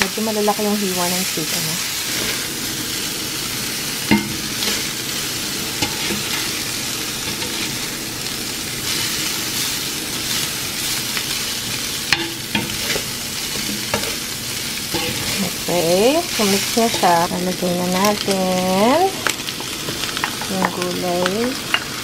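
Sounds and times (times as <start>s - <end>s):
meat sizzling on griddle: 0.0s - 22.0s
utensils clacking on pan: 4.1s - 4.9s, 5.8s - 6.6s, 12.1s - 14.3s, 14.9s - 18.4s, 19.6s - 22.0s.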